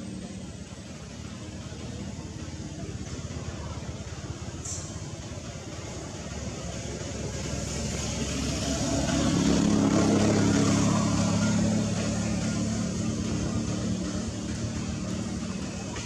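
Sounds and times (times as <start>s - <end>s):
vehicle engine droning: 0.0s - 16.0s.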